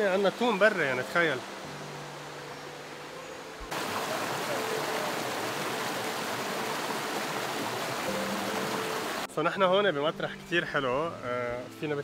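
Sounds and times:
stream water rushing over rocks: 0.0s - 9.3s.

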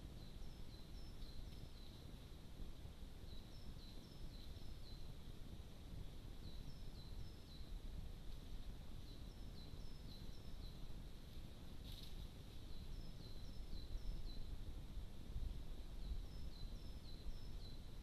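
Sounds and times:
small songbird singing: 0.0s - 2.2s, 3.1s - 5.3s, 6.3s - 7.8s, 9.0s - 11.0s, 12.6s - 14.6s, 15.8s - 18.0s.

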